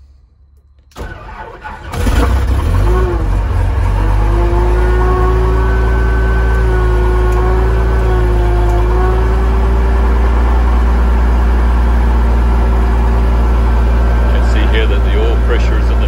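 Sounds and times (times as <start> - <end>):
aircraft piston engine idling: 12.1 - 16.0.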